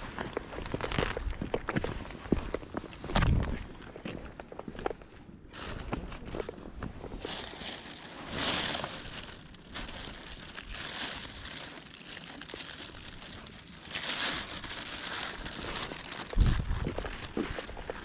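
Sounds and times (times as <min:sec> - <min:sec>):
plastic bag rustling: 0:07.0 - 0:18.0.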